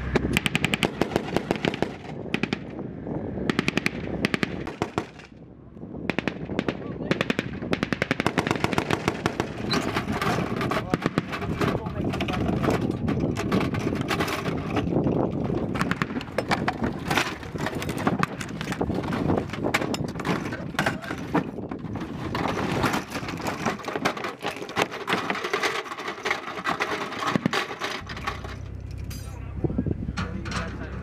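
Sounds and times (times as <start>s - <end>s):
cartridge belts rattling and clinking: 8.4s - 29.3s.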